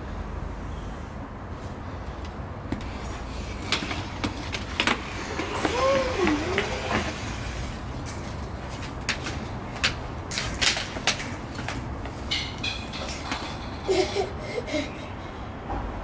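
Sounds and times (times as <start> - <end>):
wooden chair scraping on stone: 2.8 - 8.0
child's vocal sound: 5.5 - 7.2, 13.9 - 15.4.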